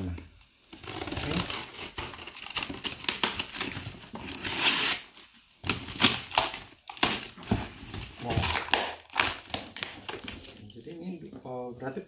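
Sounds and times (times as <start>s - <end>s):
scissors slitting packing tape: 0.8s - 5.2s.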